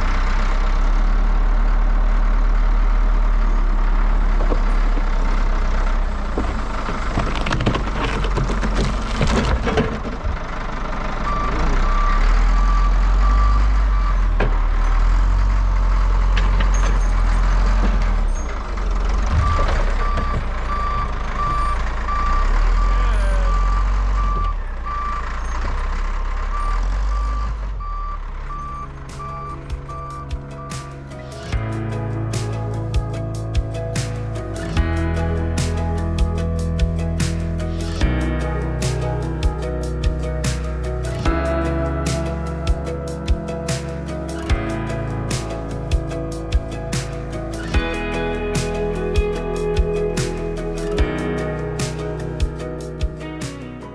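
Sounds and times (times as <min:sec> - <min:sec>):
diesel engine under load: 0:00.0 - 0:53.9
backup alarm beeping: 0:19.4 - 0:25.2, 0:26.6 - 0:30.8.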